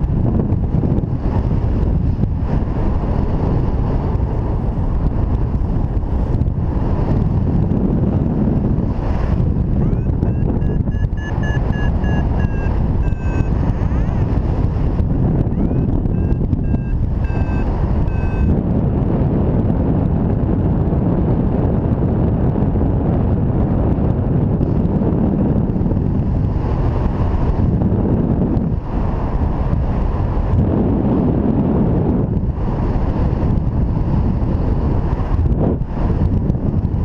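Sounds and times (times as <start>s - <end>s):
wind rushing over microphone: 0.0s - 37.0s
variometer beeps: 9.7s - 14.5s, 15.4s - 18.6s.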